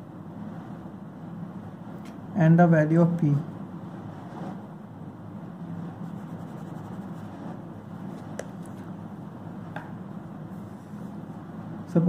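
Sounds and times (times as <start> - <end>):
low background hum: 0.0 - 12.0
pen scratching on paper: 6.0 - 7.6.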